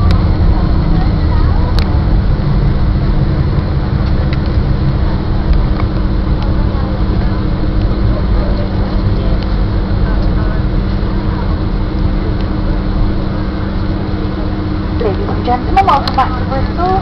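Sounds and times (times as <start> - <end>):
airliner cabin rumble: 0.0 - 17.0
steady cabin hum: 0.0 - 17.0.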